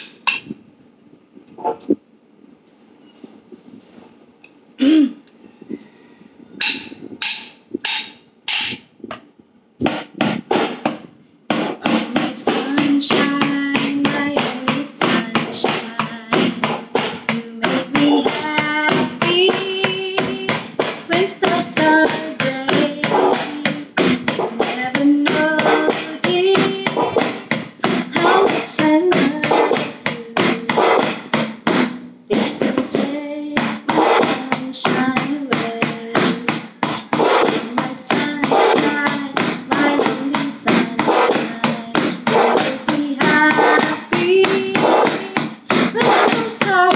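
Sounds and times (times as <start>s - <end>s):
wooden sticks tapping: 0.0s - 0.5s, 6.6s - 9.2s, 11.5s - 46.9s
woman singing: 11.8s - 46.9s.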